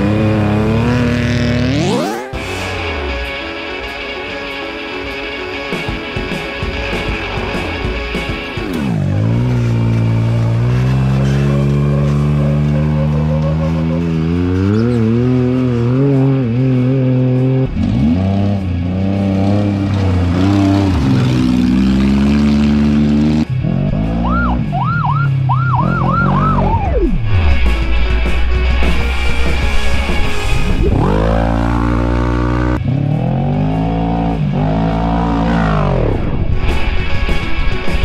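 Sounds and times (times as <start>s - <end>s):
engine revving: 0.0s - 38.0s
race vehicle engines passing: 6.8s - 27.7s.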